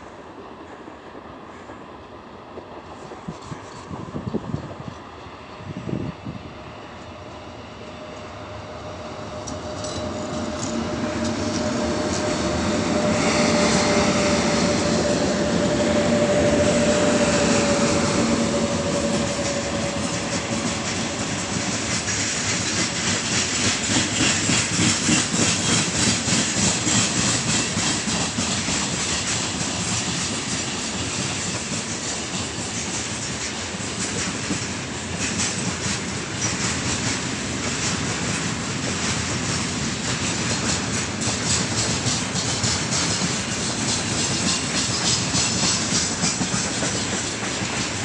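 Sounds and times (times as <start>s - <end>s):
electric locomotive whine: 0.0s - 48.0s
train wheels clattering over rail joints: 9.2s - 48.0s.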